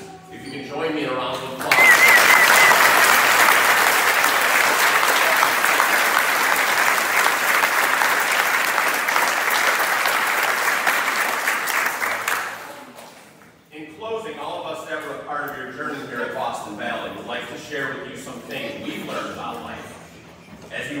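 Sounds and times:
audience applauding: 1.6 - 13.0.

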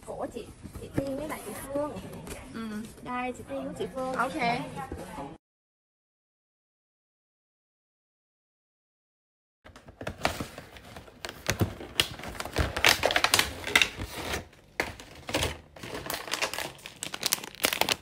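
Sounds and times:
plastic wrappers crackling: 9.7 - 18.0.

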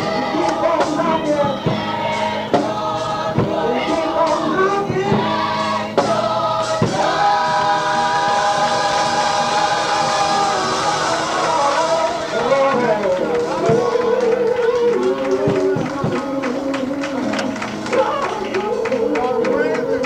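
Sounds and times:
sharp beats: 0.0 - 14.4
gospel choir singing: 0.0 - 20.0.

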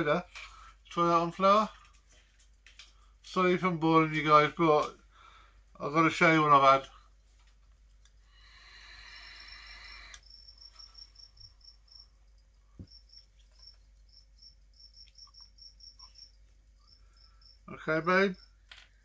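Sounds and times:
e-cigarette puff hiss: 8.2 - 10.3
cricket chirping: 8.3 - 19.0.

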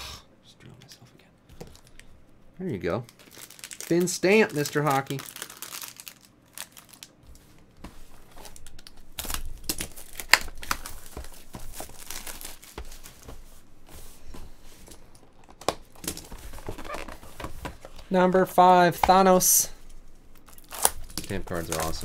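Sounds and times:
plastic wrap tearing and crinkling: 3.1 - 13.4, 15.2 - 17.3, 20.3 - 22.0.

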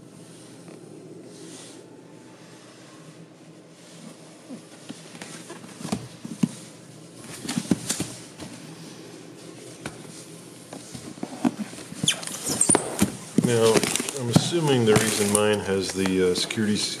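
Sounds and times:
cardboard box being handled: 13.0 - 16.1.

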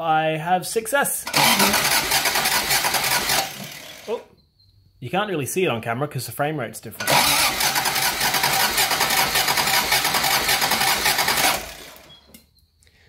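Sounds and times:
starter motor cranking engine: 1.2 - 4.2, 7.0 - 12.2.

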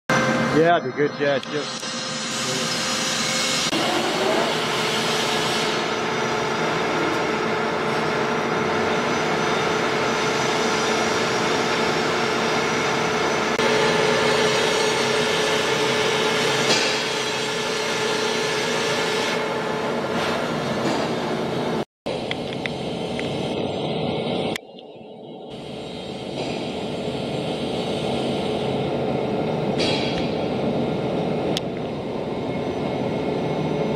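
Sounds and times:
lathe running with mechanical whir: 0.1 - 24.7.

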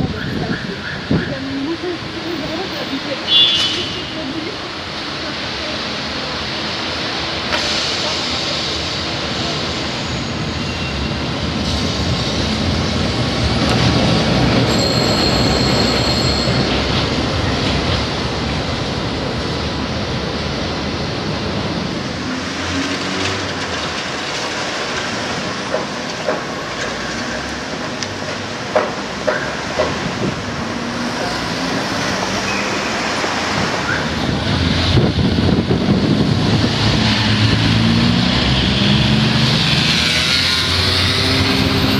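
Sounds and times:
traffic: 0.0 - 41.9
tram rumbling: 0.0 - 41.9
tram wheels squealing on rails: 6.8 - 19.3, 22.5 - 34.9.

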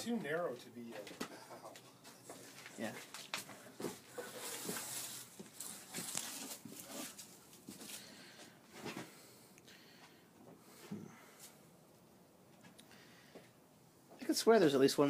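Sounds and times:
soft rustling: 1.8 - 9.3.

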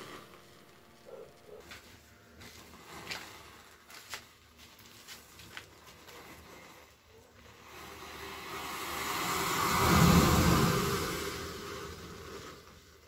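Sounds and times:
fizzing crackles: 2.9 - 13.0
rushing hiss of venting can: 7.4 - 13.0.

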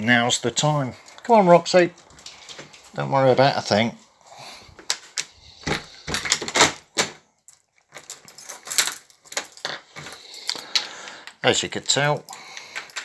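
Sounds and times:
door handling clicks and knocks: 5.6 - 7.2
keys jangling against door chain: 5.7 - 13.0.

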